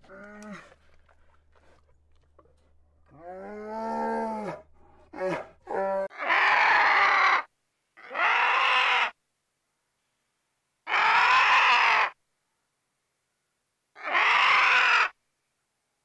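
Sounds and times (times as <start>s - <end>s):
harsh raspy animal calls: 0.0s - 9.2s, 10.9s - 12.2s, 14.0s - 15.2s.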